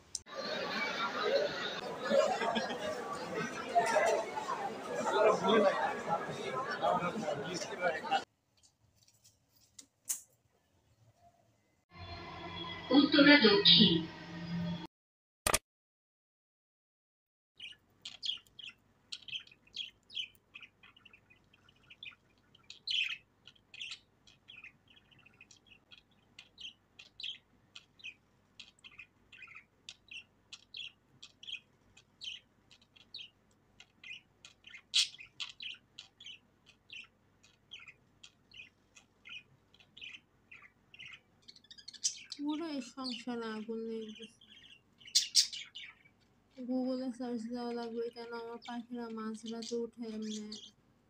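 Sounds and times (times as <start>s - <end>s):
budgerigars chirping: 17.6s - 43.2s, 44.1s - 46.4s, 49.4s - 50.8s.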